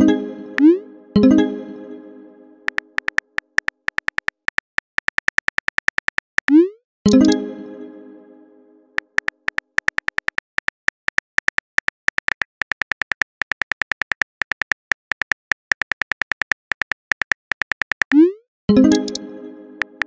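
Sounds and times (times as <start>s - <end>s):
phone keyboard typing clicks: 2.7s - 6.6s, 9.0s - 18.2s, 19.8s - 20.0s.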